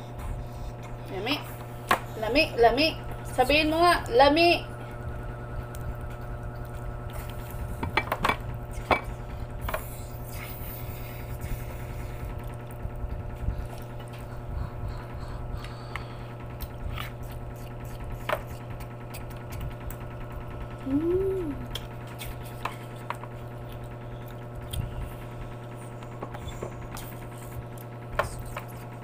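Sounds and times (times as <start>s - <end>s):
closed-mouth humming: 0.0s - 29.0s
steady low hum: 0.0s - 29.0s
chewing and mouth clicks: 5.5s - 7.9s, 8.6s - 20.2s, 21.6s - 29.0s.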